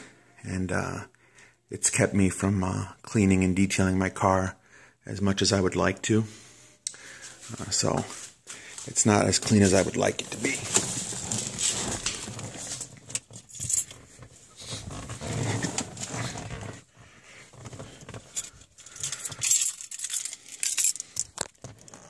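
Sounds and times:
car keys jangling: 0:13.0 - 0:14.0, 0:17.6 - 0:22.0.

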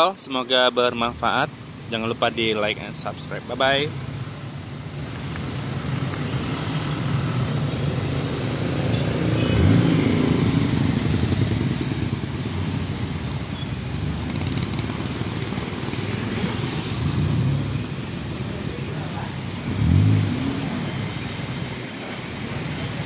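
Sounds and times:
car and motorcycle engines: 0:00.0 - 0:23.0
tyres on wet asphalt: 0:00.0 - 0:23.0
vehicle passing close: 0:04.9 - 0:23.0.

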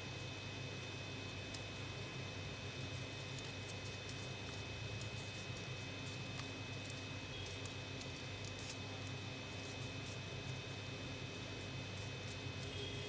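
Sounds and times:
steady low hum and hiss: 0:00.0 - 0:13.0
paper crinkling and clicking: 0:02.8 - 0:13.0.

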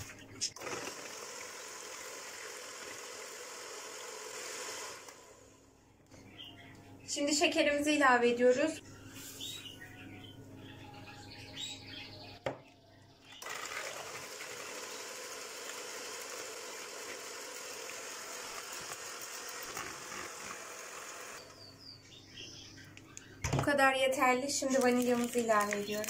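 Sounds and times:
electric hand mixer whirring: 0:00.0 - 0:05.7, 0:13.4 - 0:21.6
sugar pouring: 0:24.6 - 0:26.0.

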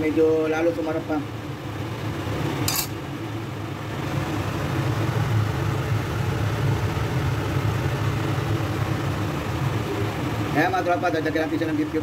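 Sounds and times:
cooktop low hum: 0:00.0 - 0:12.0.

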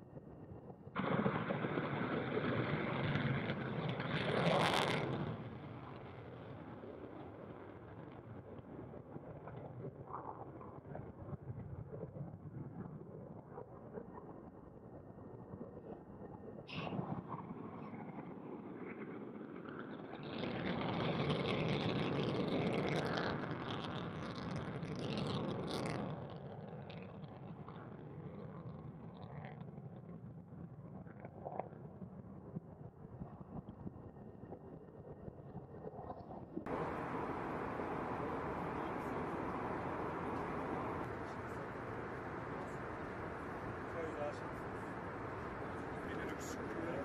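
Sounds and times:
jet engines with afterburner roaring: 0:00.0 - 0:47.0
jet engine roar: 0:01.0 - 0:07.6, 0:36.7 - 0:47.0.

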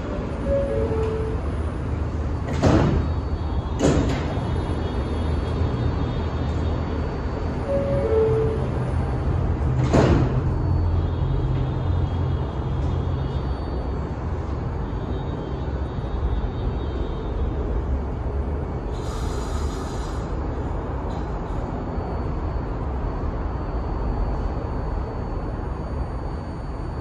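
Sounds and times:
train doors closing with thud: 0:00.0 - 0:05.7, 0:07.6 - 0:10.7
train humming with high whine: 0:00.0 - 0:27.0
air hiss: 0:18.9 - 0:20.4.

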